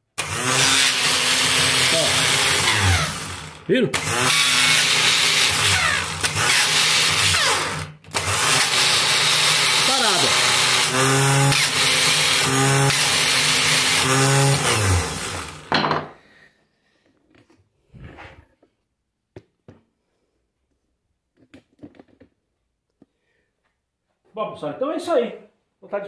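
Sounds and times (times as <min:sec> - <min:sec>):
starter motor whirring: 0:00.2 - 0:15.7.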